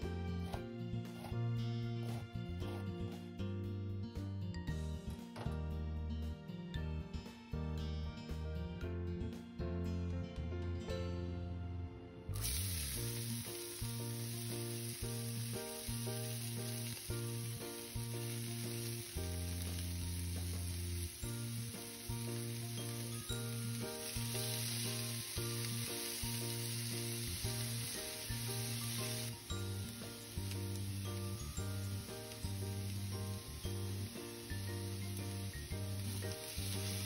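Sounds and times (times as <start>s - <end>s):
background music: 0.0s - 37.0s
vegetables sizzling in oil: 12.3s - 37.0s.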